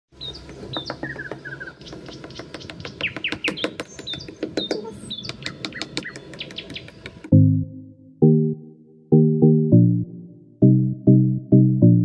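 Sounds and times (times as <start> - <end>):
birds chirping and calling: 0.2 - 7.2.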